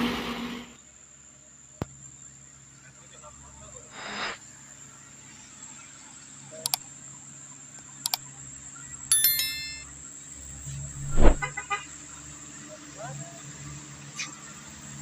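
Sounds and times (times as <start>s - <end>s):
bell-like notification chime: 9.1s - 9.8s.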